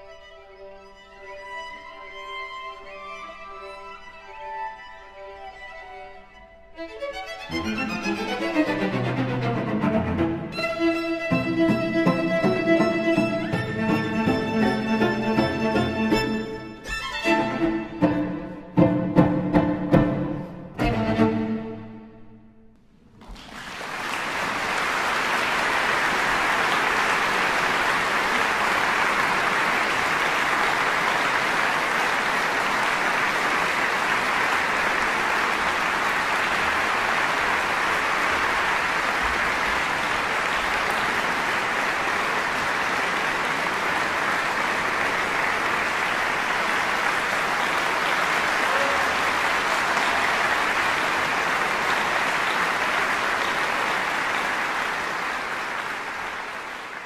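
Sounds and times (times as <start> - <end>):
large audience applauding: 7.5 - 18.0, 23.1 - 57.0.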